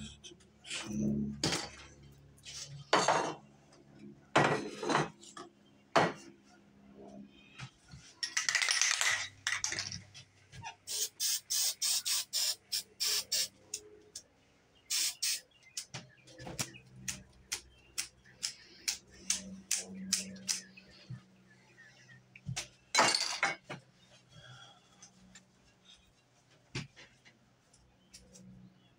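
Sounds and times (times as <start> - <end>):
spray can short spurts: 10.9 - 13.5, 14.9 - 15.4
spray paint can hissing: 10.9 - 13.5, 14.9 - 15.4.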